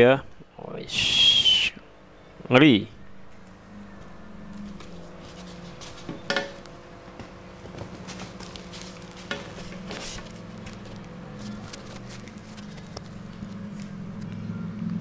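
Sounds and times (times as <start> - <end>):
steady low hum: 0.0 - 15.0
foam box scraping and rustling: 7.7 - 12.9.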